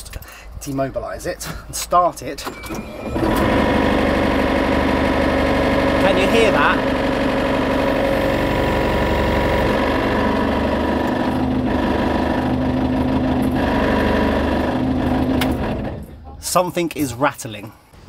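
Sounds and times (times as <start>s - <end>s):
diesel engine idling: 3.0s - 16.4s.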